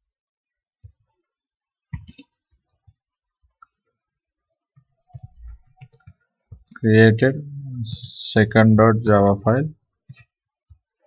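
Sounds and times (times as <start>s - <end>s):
keyboard typing: 1.9s - 2.3s.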